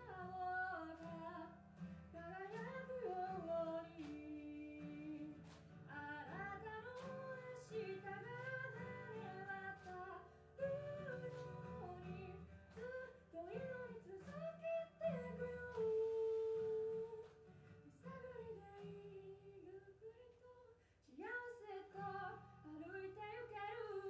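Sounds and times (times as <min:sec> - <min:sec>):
acoustic guitar strumming: 0:00.0 - 0:19.4
woman singing a slow ballad: 0:00.0 - 0:24.0.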